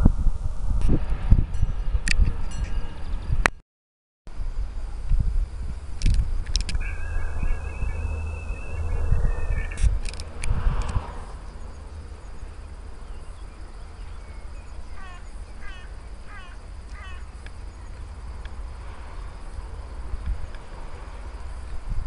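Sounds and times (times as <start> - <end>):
steady low rumble: 0.0 - 3.5, 4.3 - 22.0
sharp clicks: 6.0 - 6.8, 9.7 - 11.0
bird chirping: 6.7 - 10.3, 11.4 - 18.0.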